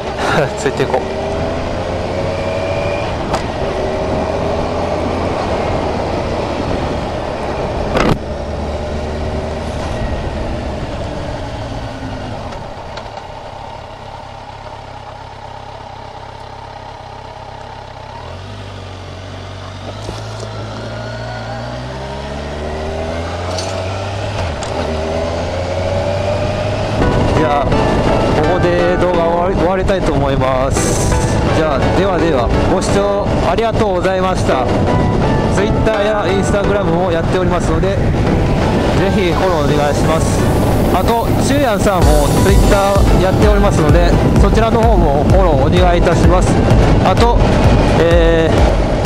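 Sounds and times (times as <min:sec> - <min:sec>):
motorcycle engine accelerating: 0:00.0 - 0:49.0
wind noise: 0:36.5 - 0:49.0.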